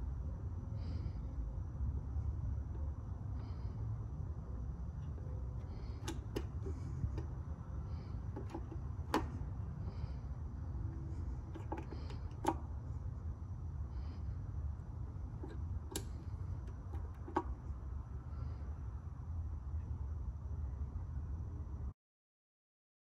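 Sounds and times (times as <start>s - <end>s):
low background hum: 0.0s - 22.0s
test probes clicking and tapping: 8.4s - 9.5s, 11.0s - 12.6s, 15.4s - 17.6s.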